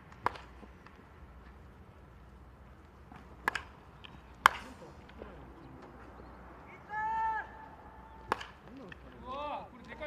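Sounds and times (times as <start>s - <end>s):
baseball bat cracking ball: 0.1s - 1.0s, 3.1s - 5.2s, 8.2s - 9.1s.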